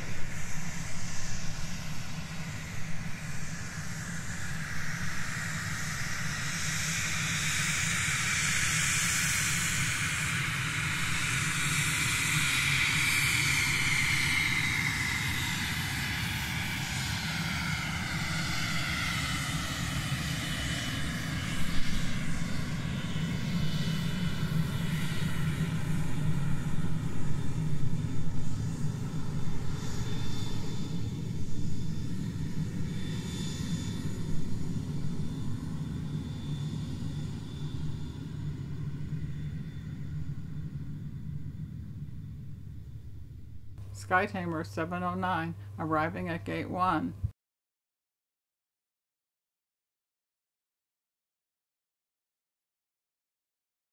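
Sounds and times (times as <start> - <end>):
airliner engine whine: 0.0 - 47.3
low engine rumble: 39.7 - 47.3.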